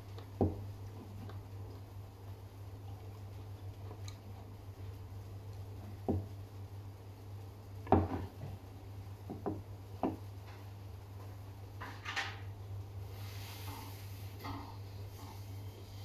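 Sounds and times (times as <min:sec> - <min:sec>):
steady low hum: 0:00.0 - 0:16.0
wooden bowl knocking on table: 0:07.9 - 0:08.3
rustling scrape: 0:13.1 - 0:16.0.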